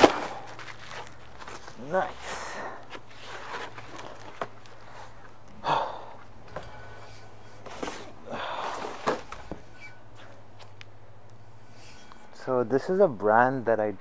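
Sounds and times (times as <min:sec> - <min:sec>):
cardboard box rustling and scraping: 0:00.0 - 0:02.2, 0:02.9 - 0:05.3, 0:06.5 - 0:10.4.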